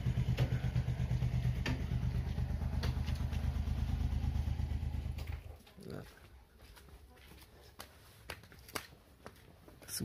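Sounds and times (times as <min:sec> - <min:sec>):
small engine idling: 0:00.0 - 0:05.5.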